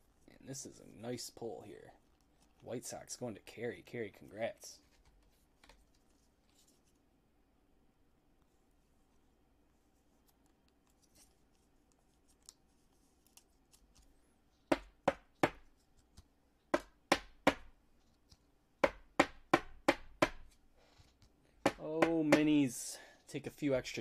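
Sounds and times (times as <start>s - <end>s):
card sleeve rustling: 10.2s - 14.2s.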